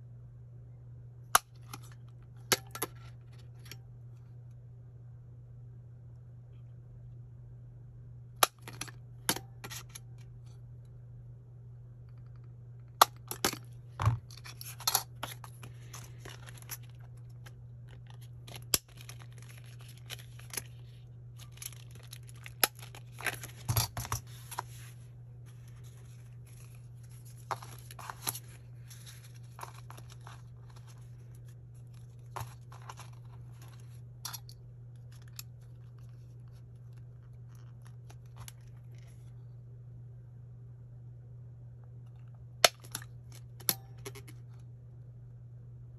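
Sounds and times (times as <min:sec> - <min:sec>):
steady low hum: 0:00.0 - 0:45.9
paper sheets rustling: 0:14.5 - 0:34.0.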